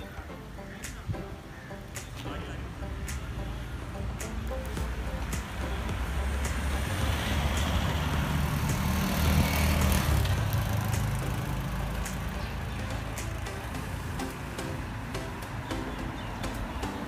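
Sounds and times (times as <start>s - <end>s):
vehicle driving past: 4.8s - 15.3s.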